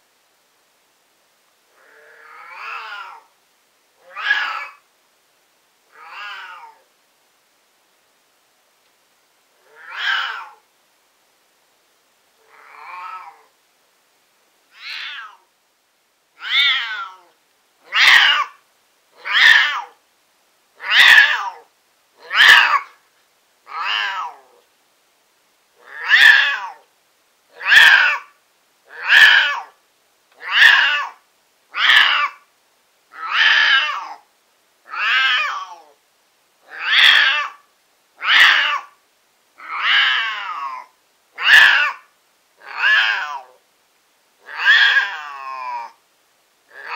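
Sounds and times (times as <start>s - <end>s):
cat yowling: 1.8s - 3.3s, 4.0s - 4.8s, 5.9s - 6.9s, 9.6s - 10.6s, 12.5s - 13.5s, 14.7s - 15.5s, 16.4s - 18.6s, 19.2s - 20.0s, 20.8s - 23.0s, 23.7s - 24.6s, 25.8s - 26.9s, 27.5s - 28.3s, 28.9s - 29.8s, 30.4s - 32.4s, 33.1s - 34.2s, 34.9s - 36.0s, 36.7s - 37.6s, 38.2s - 39.0s, 39.6s - 43.6s, 44.4s - 46.0s.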